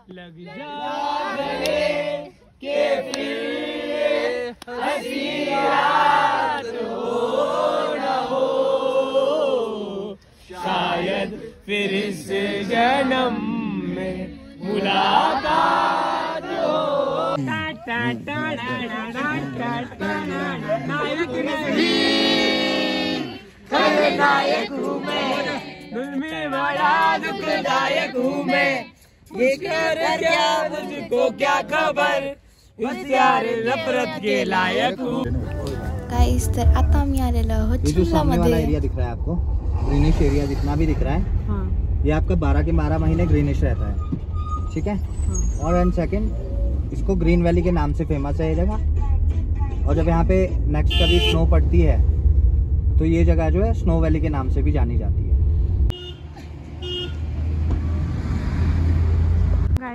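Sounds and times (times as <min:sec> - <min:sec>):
group of voices singing: 0:00.5 - 0:37.0.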